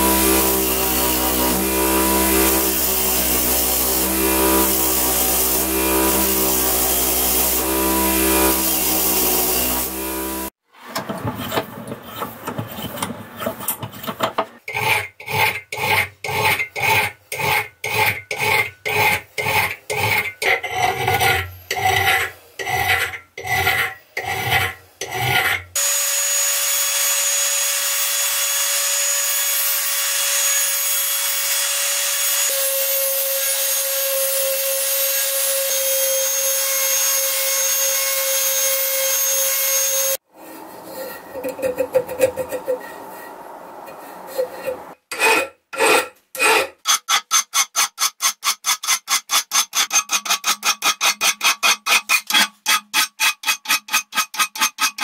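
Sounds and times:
rotary tool grinding steel: 0:00.0 - 0:10.6, 0:11.2 - 0:55.0
hand file rasping on steel: 0:11.4 - 0:25.7, 0:40.4 - 0:55.0.

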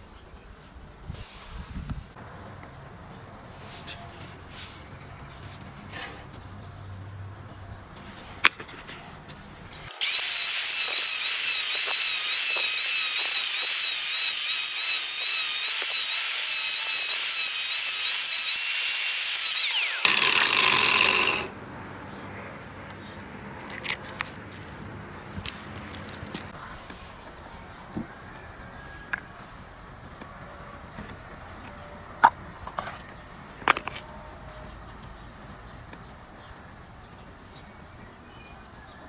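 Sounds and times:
angle grinder cutting plastic: 0:09.9 - 0:21.5.

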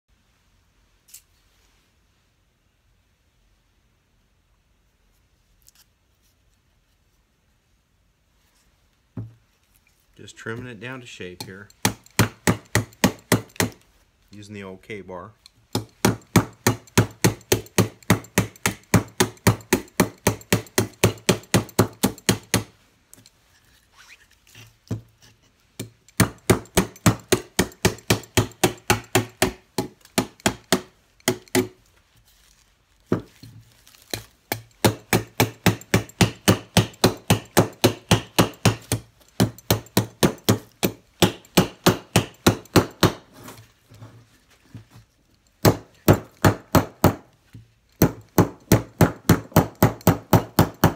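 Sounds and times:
knife chopping into wood: 0:26.2 - 0:31.8, 0:33.1 - 0:43.3.

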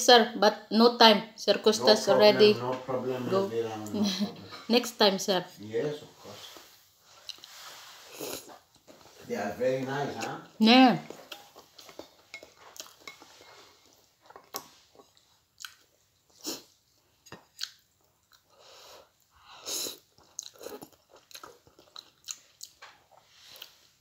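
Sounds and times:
person chewing noodles: 0:07.1 - 0:08.9, 0:10.1 - 0:24.0.

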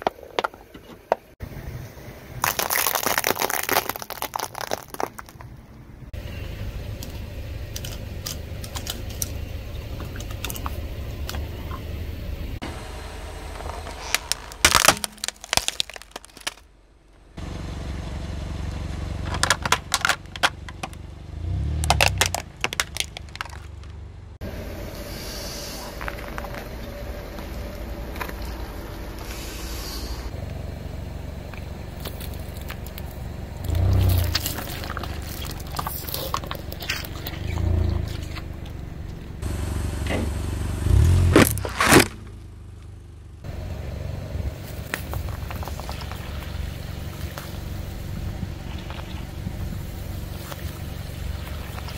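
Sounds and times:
tyre crushing objects: 0:02.4 - 0:05.5, 0:13.6 - 0:16.6, 0:21.7 - 0:23.9, 0:40.9 - 0:42.3
car engine running: 0:03.3 - 0:51.9.

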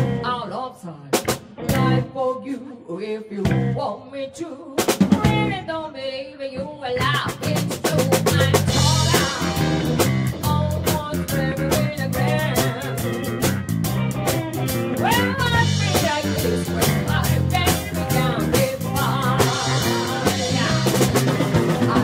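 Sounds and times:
electric guitar: 0:00.0 - 0:00.5, 0:01.1 - 0:02.2, 0:06.6 - 0:22.0
woman singing amplified: 0:00.1 - 0:13.3, 0:15.0 - 0:22.0
drum kit beat: 0:01.2 - 0:02.0, 0:04.8 - 0:05.6, 0:07.0 - 0:22.0.

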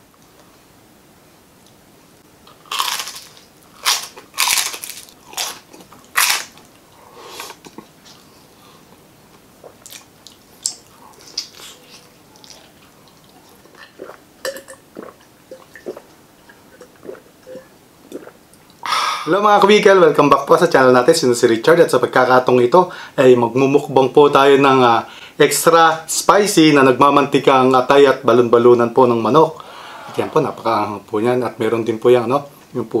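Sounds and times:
crunching bites of fried chicken: 0:02.5 - 0:06.6
soft chewing: 0:04.1 - 0:14.2
gulping while drinking: 0:13.6 - 0:19.3.

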